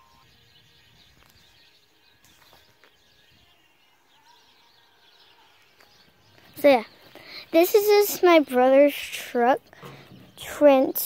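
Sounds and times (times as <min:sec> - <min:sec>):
faint bird chirps: 0:00.0 - 0:08.4.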